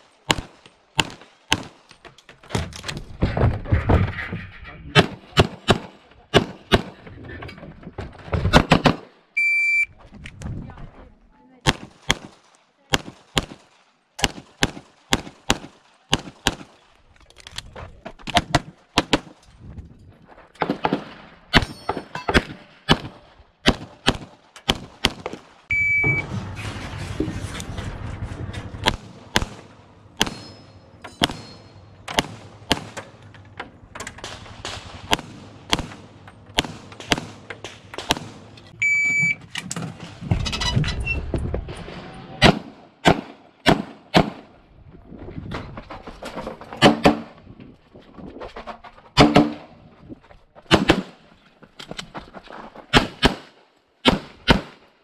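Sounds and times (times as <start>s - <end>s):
pistol shots: 0.2s - 1.8s, 34.2s - 38.5s, 42.4s - 44.5s, 52.9s - 54.8s
shot timer beep: 9.4s - 9.9s, 25.7s - 26.2s, 38.8s - 39.4s.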